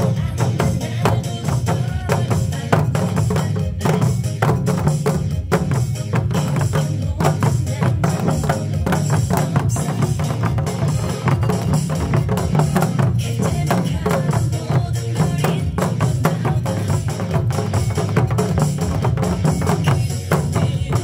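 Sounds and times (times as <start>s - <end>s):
barrel drums in fast rhythm: 0.0s - 21.0s.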